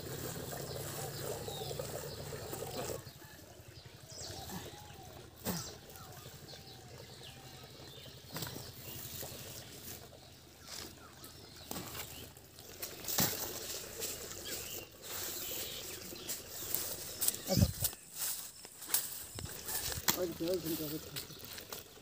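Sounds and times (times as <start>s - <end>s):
hands squeezing wet dung: 8.3s - 22.0s.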